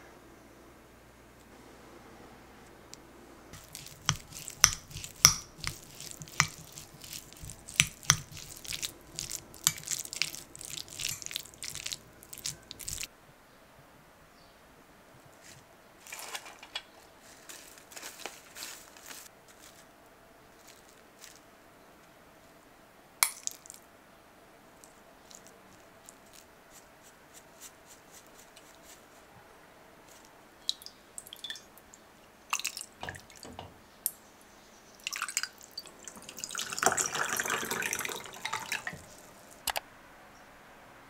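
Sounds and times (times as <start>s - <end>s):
spoon clinking and scraping glass bowl: 3.6s - 13.0s.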